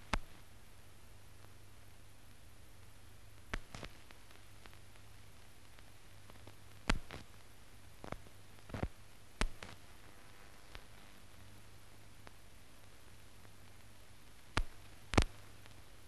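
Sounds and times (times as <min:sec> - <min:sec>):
faint steady hiss: 0:00.0 - 0:16.0
sharp clicks: 0:03.5 - 0:04.8, 0:06.8 - 0:07.3.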